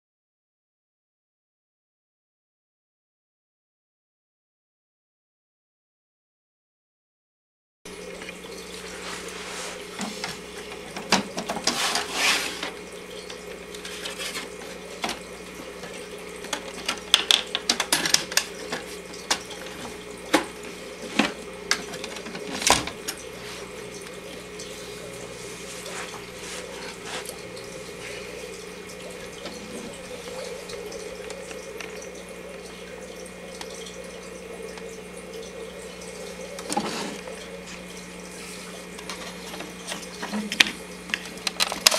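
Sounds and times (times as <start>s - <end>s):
steady low hum: 7.9s - 41.9s
plastic clicks and rattles: 16.5s - 19.5s, 39.0s - 41.9s.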